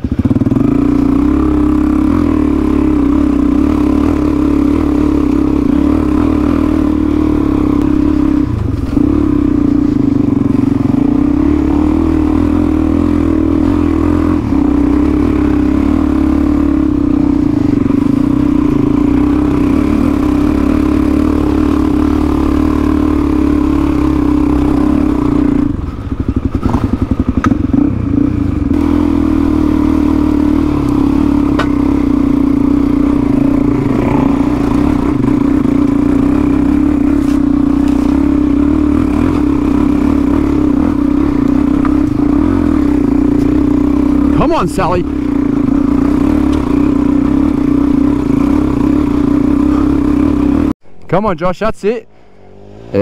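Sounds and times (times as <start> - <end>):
dirt bike engine revving: 0.0 - 50.8, 52.1 - 53.0.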